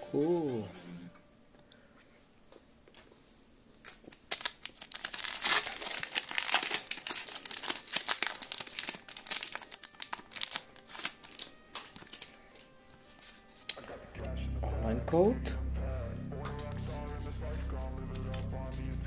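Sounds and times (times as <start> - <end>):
foil wrapper crinkling and tearing: 3.7 - 13.8.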